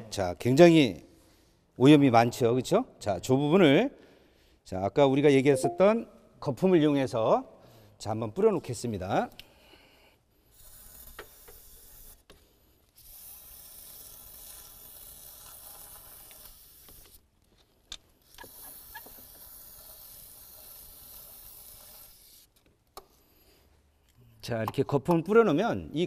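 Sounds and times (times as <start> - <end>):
aerosol can spraying: 18.4 - 22.5.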